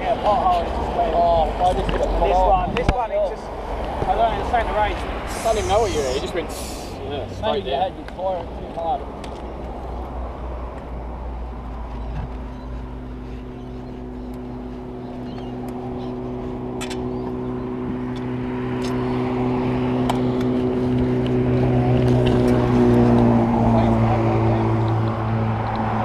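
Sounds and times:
vehicle engine humming: 0:04.5 - 0:07.5, 0:11.4 - 0:26.0.

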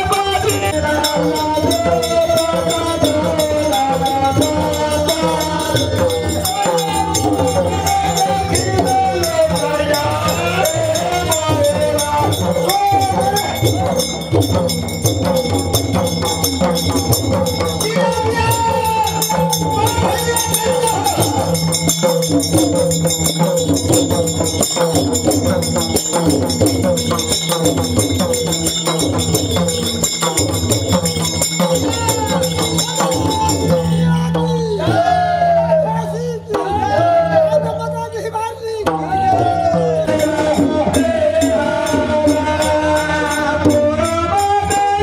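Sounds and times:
person singing: 0:00.0 - 0:14.0
hand drums: 0:00.0 - 0:45.0
jingling percussion: 0:00.0 - 0:45.0.

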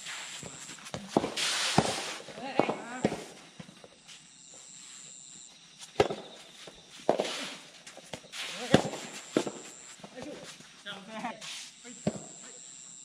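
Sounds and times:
shoes scuffing on sandy court: 0:00.0 - 0:12.3
rackets hitting ball: 0:06.0 - 0:06.2, 0:08.2 - 0:09.6.

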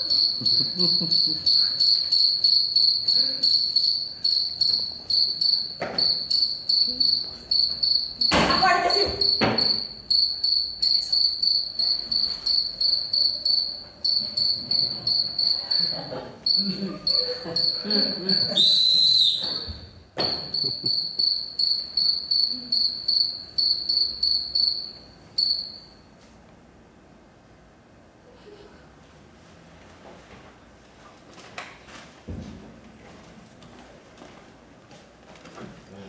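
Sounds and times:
cricket chirping: 0:00.0 - 0:26.0
whistle-like tone: 0:17.1 - 0:25.9.

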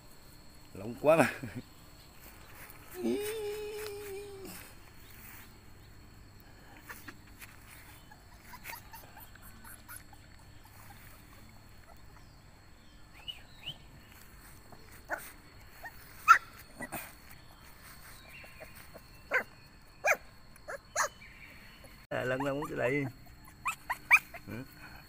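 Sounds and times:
puppies yelping and squeaking: 0:06.8 - 0:12.4, 0:14.5 - 0:21.2, 0:21.8 - 0:24.6.

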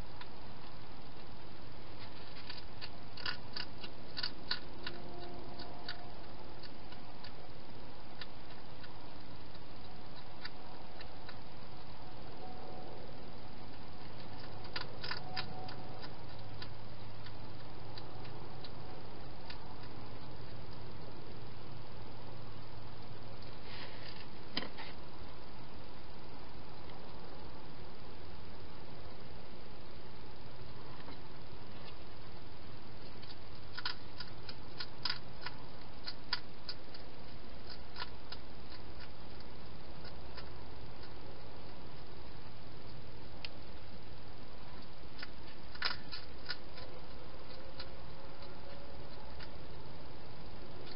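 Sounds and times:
steady low hiss: 0:00.0 - 0:50.9
hedgehog chewing clicks: 0:02.3 - 0:06.0, 0:06.6 - 0:07.4, 0:08.1 - 0:11.9, 0:13.7 - 0:20.8, 0:33.0 - 0:42.1, 0:44.8 - 0:49.7, 0:50.4 - 0:50.9.

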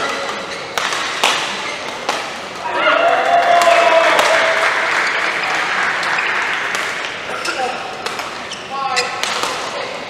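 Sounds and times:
people shouting: 0:02.6 - 0:06.7
spectators applauding: 0:02.9 - 0:07.2.

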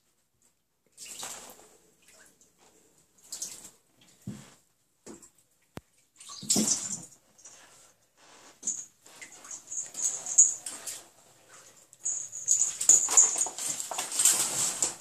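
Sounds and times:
water splashing in bathtub: 0:00.9 - 0:04.3, 0:05.1 - 0:07.2.

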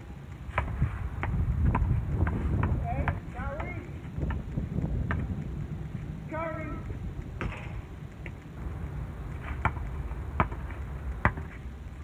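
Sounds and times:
basketball bouncing on asphalt: 0:00.1 - 0:12.0
wind rumble on microphone: 0:00.6 - 0:12.0.

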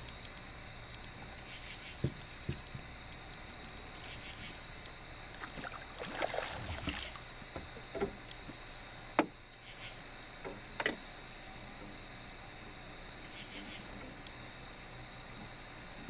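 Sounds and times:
high-pitched insect chorus: 0:00.0 - 0:16.0
knocks against a boat: 0:02.0 - 0:02.9, 0:06.8 - 0:08.2, 0:09.2 - 0:09.4
fish splashing in water: 0:05.3 - 0:07.4.

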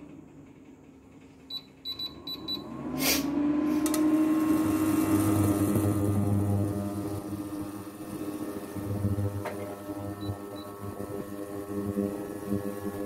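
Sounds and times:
cooling fan whirring: 0:00.0 - 0:13.0
control panel beeps: 0:01.5 - 0:02.6.

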